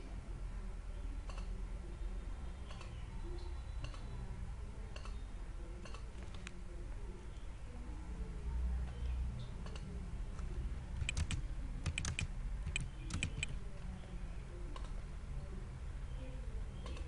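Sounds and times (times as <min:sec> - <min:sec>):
computer keyboard typing: 0:11.0 - 0:13.6.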